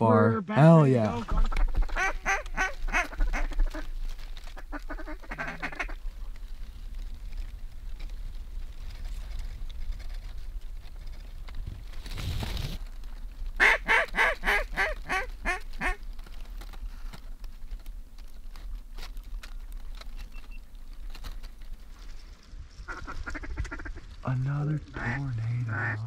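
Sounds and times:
duck quacks: 1.2 - 3.9, 4.6 - 6.0, 25.0 - 26.0
brief rustle: 5.4 - 13.6, 15.6 - 22.5.

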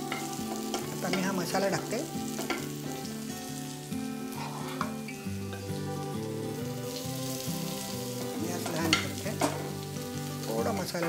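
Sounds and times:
oil sizzling in a frying pan: 0.0 - 11.0
soft instrumental music: 0.0 - 11.0
spoon scraping a pan: 2.3 - 3.0, 4.3 - 5.7.

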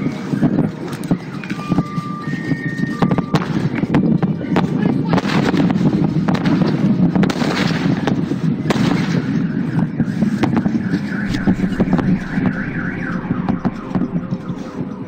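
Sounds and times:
wavering car alarm: 9.4 - 15.0
sharp bangs: 11.2 - 15.0
steady low noise: 11.2 - 15.0.

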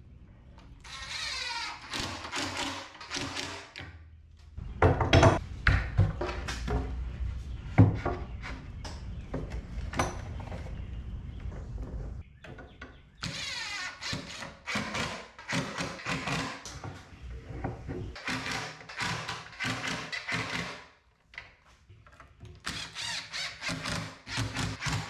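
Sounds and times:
drill driving screws into wood: 0.9 - 3.8, 13.2 - 16.6, 18.2 - 20.8, 22.6 - 25.0.

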